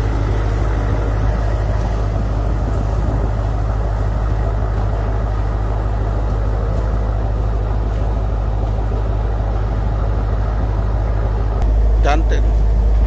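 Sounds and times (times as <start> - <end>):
boat engine low rumble: 0.0 - 13.0.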